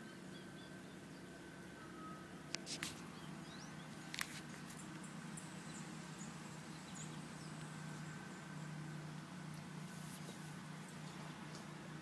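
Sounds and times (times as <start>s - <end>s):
bird chirps: 0.0s - 4.0s, 4.8s - 8.8s
steady low hum: 0.0s - 12.0s.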